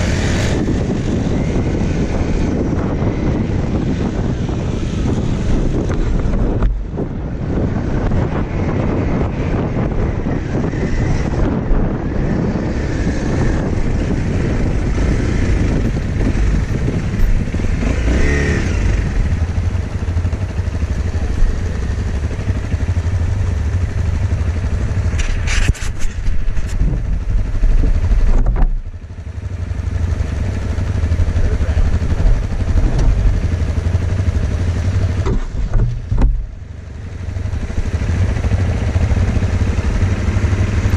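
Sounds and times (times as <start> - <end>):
dirt bike engine running: 0.0 - 40.9.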